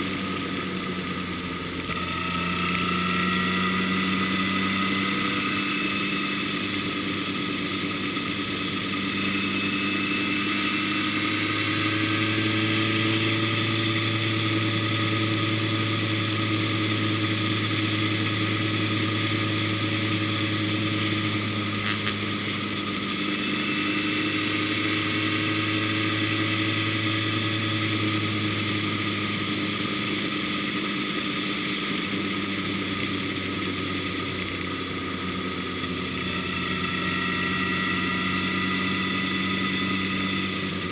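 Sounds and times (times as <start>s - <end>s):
motorcycle engine cruising: 0.0s - 40.9s.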